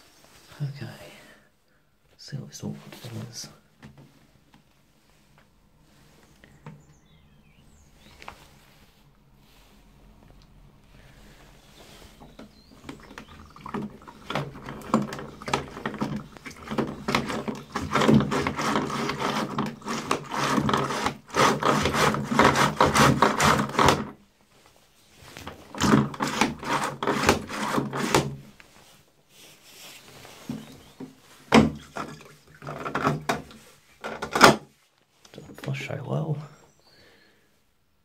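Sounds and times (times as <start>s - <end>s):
toilet flush pump clicking: 12.4s - 24.1s, 25.7s - 28.4s.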